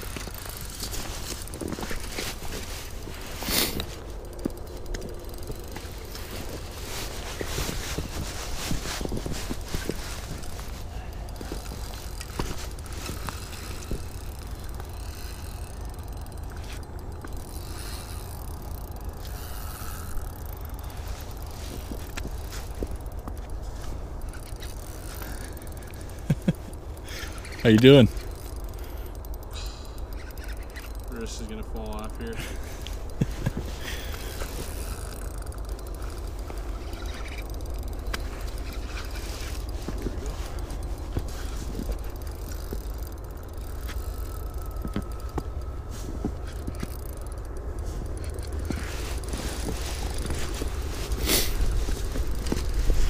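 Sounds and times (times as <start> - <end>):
fishing reel clicks: 0.0 - 7.9, 9.6 - 53.0
fishing reel being cranked: 0.0 - 53.0
wind rumbling on microphone: 5.0 - 15.4.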